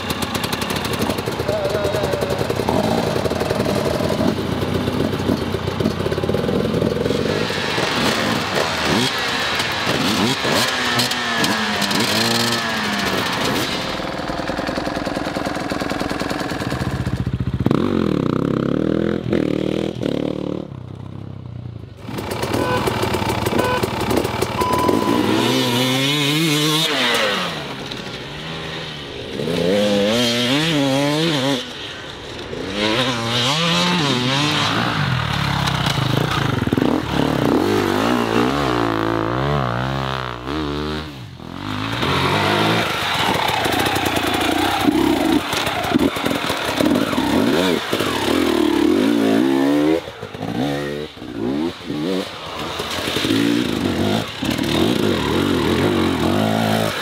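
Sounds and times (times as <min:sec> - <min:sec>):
dirt bike engines revving: 0:00.0 - 0:21.2, 0:22.0 - 0:57.0.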